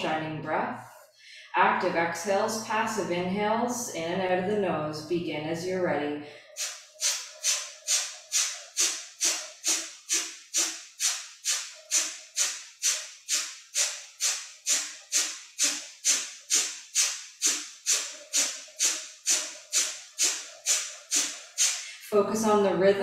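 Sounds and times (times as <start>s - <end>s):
forceful nasal exhales: 6.3s - 22.0s.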